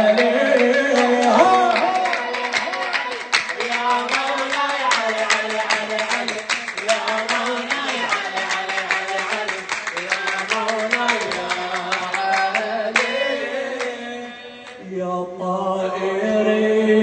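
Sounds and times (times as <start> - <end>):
man chanting into microphone: 0.0 - 13.2
sharp rhythmic beats: 0.0 - 14.8.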